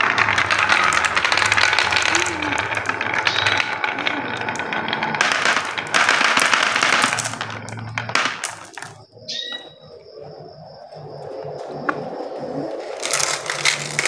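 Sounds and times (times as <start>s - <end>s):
marbles clattering on wooden tracks: 0.0s - 10.0s, 12.8s - 14.0s.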